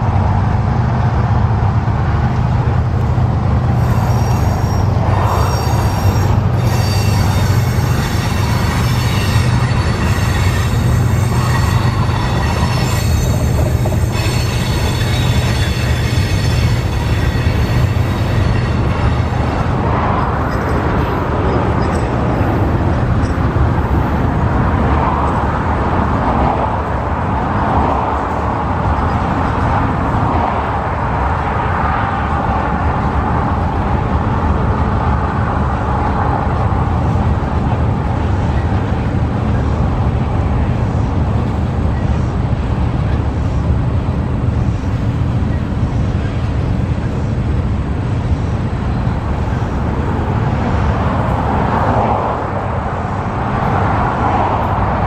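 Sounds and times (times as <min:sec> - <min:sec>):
freight train wheels rumbling: 0:00.0 - 0:55.0
high-pitched wheel squeal: 0:03.8 - 0:19.7.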